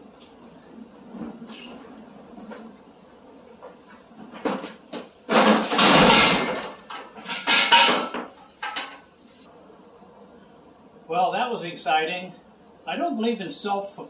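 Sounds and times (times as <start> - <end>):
loud crash and clatter: 4.3 - 8.9.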